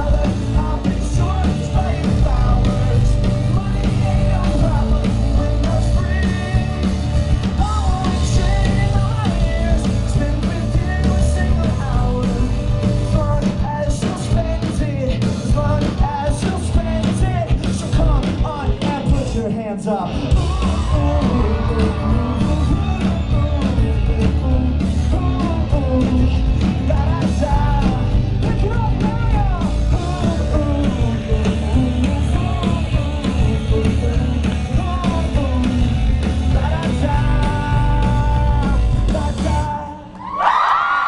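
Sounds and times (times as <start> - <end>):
live rock band playing: 0.0 - 40.1
lead singer: 0.0 - 41.0
crowd cheering and screaming: 20.1 - 27.8, 40.0 - 41.0.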